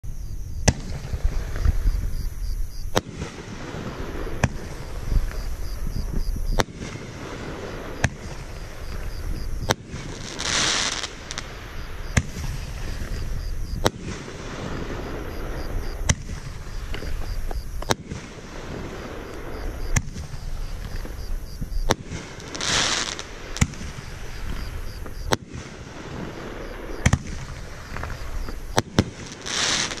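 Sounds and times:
firework hissing rush: 6.7s - 13.3s, 21.9s - 30.0s.

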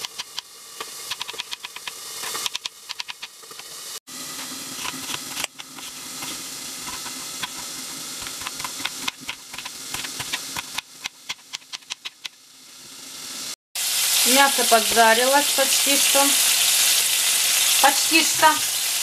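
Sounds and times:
meat sizzling in a frying pan: 12.4s - 19.0s.

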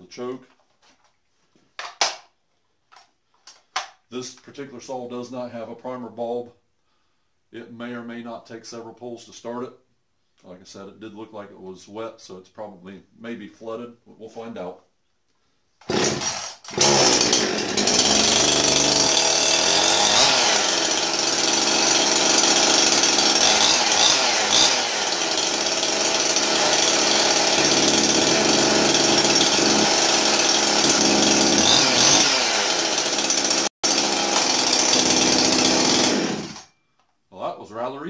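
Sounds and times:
chainsaw pull-started and running: 15.8s - 36.8s.

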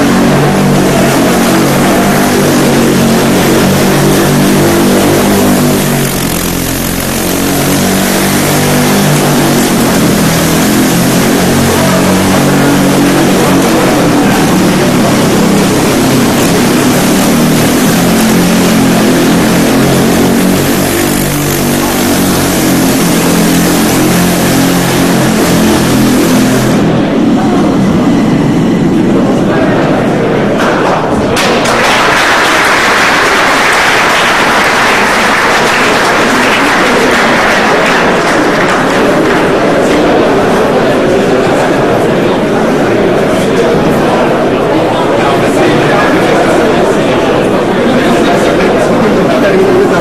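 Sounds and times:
hissing noise: 0.0s - 28.8s
air motor hum: 0.0s - 50.0s.

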